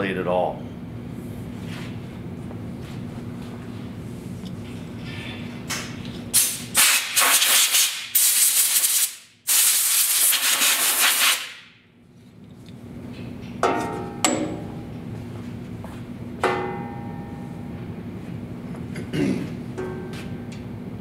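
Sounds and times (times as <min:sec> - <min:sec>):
tools knocking: 0:13.6 - 0:14.7.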